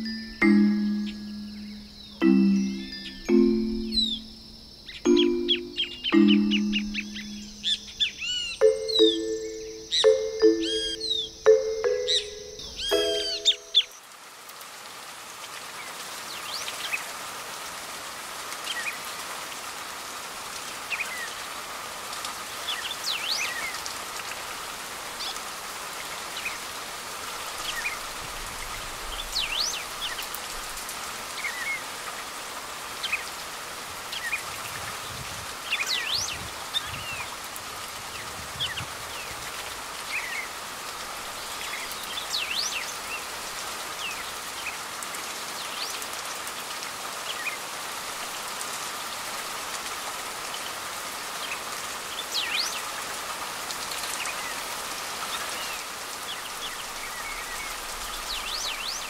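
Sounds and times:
bird chirps: 0:00.0 - 0:14.0
rain on leaves: 0:00.0 - 0:59.0.

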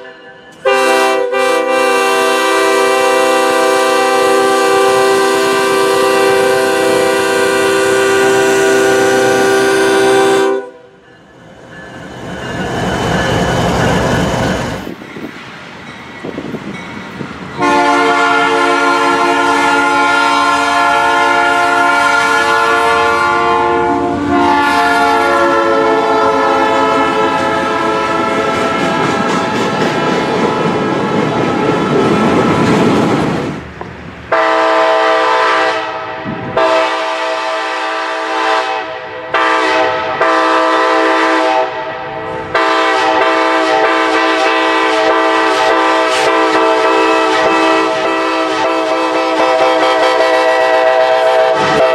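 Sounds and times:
train horn blasts: 0:00.0 - 0:11.0, 0:17.6 - 0:29.3, 0:34.3 - 0:51.9
rumbling of passing train: 0:00.0 - 0:51.9.

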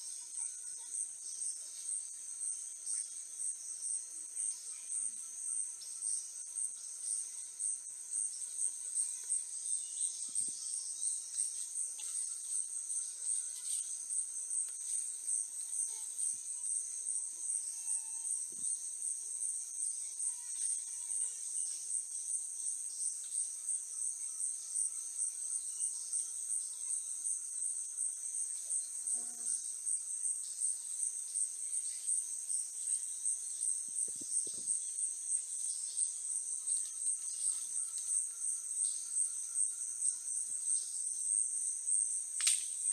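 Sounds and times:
forest insects chorus: 0:00.0 - 0:42.9.

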